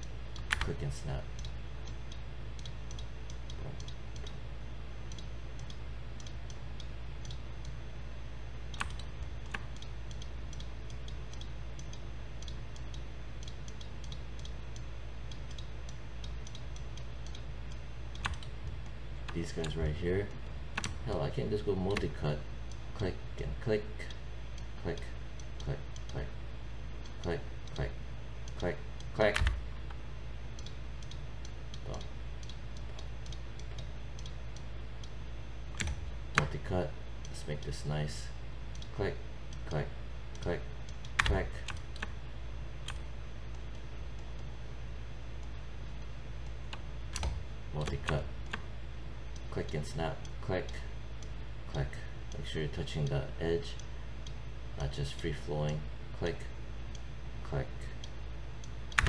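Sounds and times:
computer mouse clicking: 0:00.0 - 0:00.8, 0:01.4 - 0:04.4, 0:05.1 - 0:07.8, 0:08.7 - 0:21.1, 0:30.6 - 0:35.1, 0:35.7 - 0:36.6, 0:38.7 - 0:38.9, 0:40.3 - 0:42.2, 0:42.8 - 0:44.5, 0:46.4 - 0:48.7, 0:58.0 - 0:59.0
steady low hum: 0:00.0 - 0:59.0.

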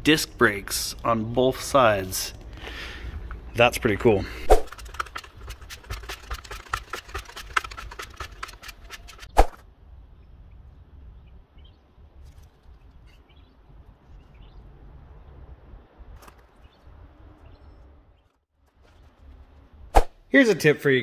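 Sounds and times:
plastic spreader clicking and scraping: 0:04.6 - 0:09.4.

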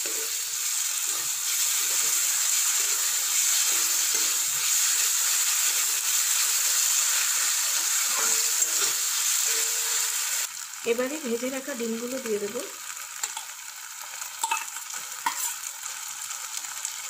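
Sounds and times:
steel spatula scraping pan: 0:00.0 - 0:10.2, 0:15.2 - 0:15.6
vegetables sizzling in hot oil: 0:00.0 - 0:17.0.

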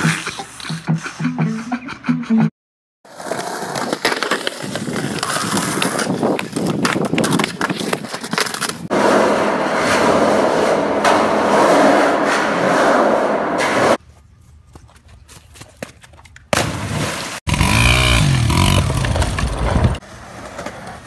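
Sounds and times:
skateboard wheels rolling on concrete: 0:03.0 - 0:14.8, 0:18.6 - 0:21.0.

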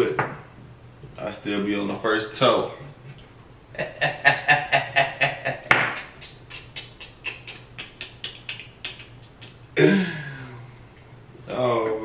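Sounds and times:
man laughing: 0:02.8 - 0:10.4.

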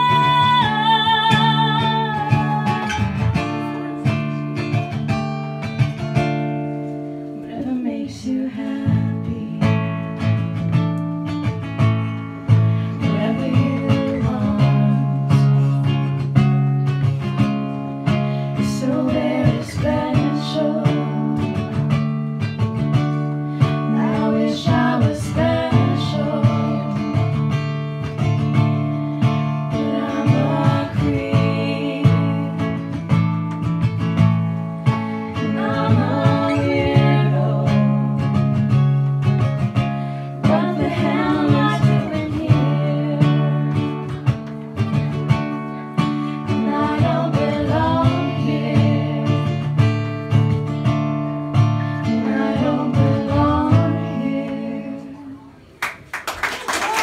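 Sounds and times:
women singing in harmony: 0:00.0 - 0:03.8, 0:07.4 - 0:09.8, 0:13.0 - 0:15.6, 0:18.6 - 0:21.7, 0:23.7 - 0:27.4, 0:29.7 - 0:32.9, 0:35.2 - 0:38.4, 0:40.4 - 0:44.1, 0:46.4 - 0:49.8, 0:51.8 - 0:55.6
acoustic guitar strumming: 0:00.0 - 0:55.2.

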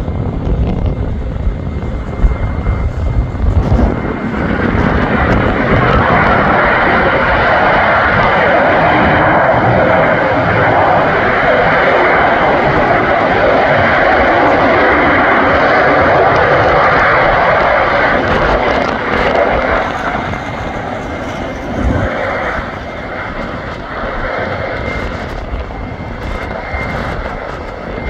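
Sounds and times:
jet engines roaring: 0:00.0 - 0:28.0.

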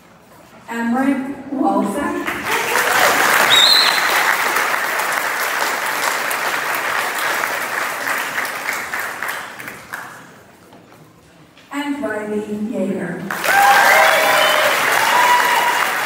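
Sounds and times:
audience applauding: 0:02.2 - 0:10.4, 0:13.3 - 0:16.0.

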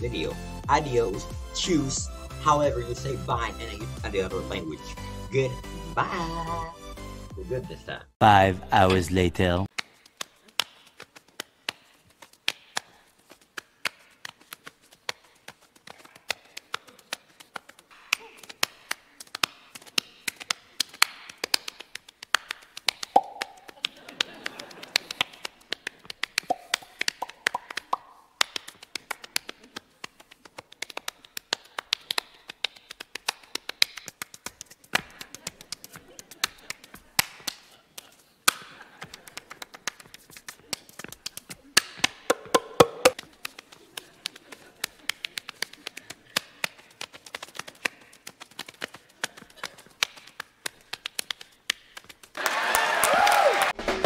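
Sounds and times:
hands slapping thighs and body: 0:09.7 - 0:52.4.

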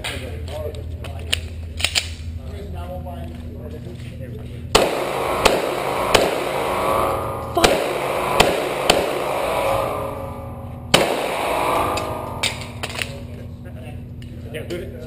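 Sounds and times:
pistol gunshots with echo: 0:04.7 - 0:13.3.

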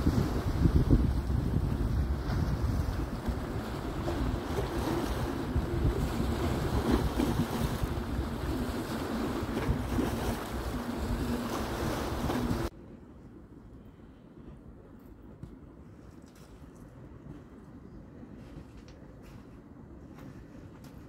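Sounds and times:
waves washing against rocks: 0:00.0 - 0:12.7
wind buffeting microphone: 0:00.0 - 0:12.7.

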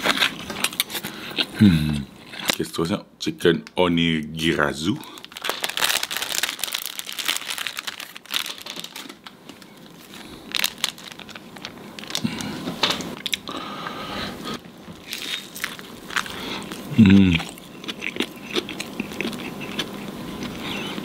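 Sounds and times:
plastic wrapper crinkling and tearing: 0:05.0 - 0:13.4, 0:15.0 - 0:17.6.

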